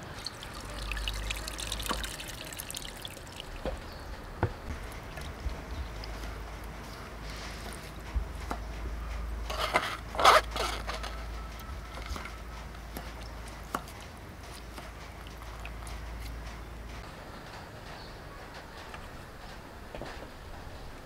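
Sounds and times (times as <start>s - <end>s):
hands squeezing wet coconut: 0.0s - 3.8s.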